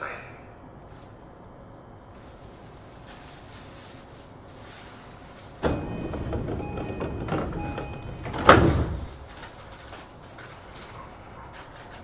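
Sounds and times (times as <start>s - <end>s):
door-closing chime beeps: 5.6s - 8.9s
doors closing thump: 5.6s - 9.4s
sliding doors running shut: 5.6s - 12.0s.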